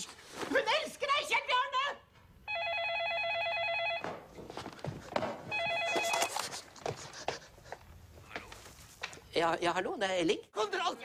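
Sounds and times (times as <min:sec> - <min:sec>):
telephone ringing with electronic trill: 0:02.4 - 0:04.1, 0:05.5 - 0:06.4.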